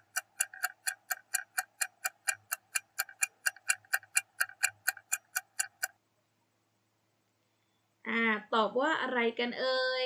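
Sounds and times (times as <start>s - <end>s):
countdown timer ticking: 0.0s - 5.9s.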